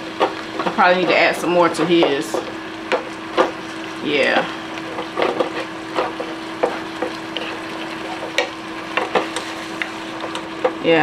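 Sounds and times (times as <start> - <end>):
pan sizzling: 0.0 - 11.0
wooden spatula knocking in skillet: 1.9 - 3.6, 4.9 - 10.8.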